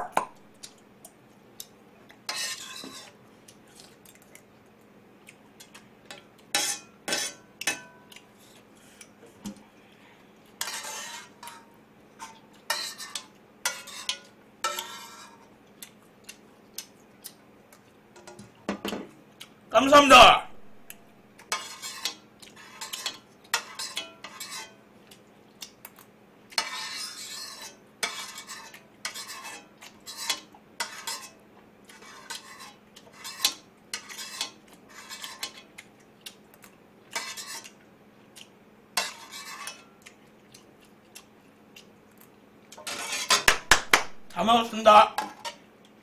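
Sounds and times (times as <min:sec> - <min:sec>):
metal spoon scraping metal pot: 0:02.3 - 0:03.2, 0:06.6 - 0:07.4, 0:10.6 - 0:11.6, 0:12.2 - 0:15.4, 0:21.5 - 0:24.8, 0:26.6 - 0:31.3, 0:31.9 - 0:35.6, 0:37.2 - 0:37.7, 0:39.0 - 0:39.8, 0:42.8 - 0:43.5.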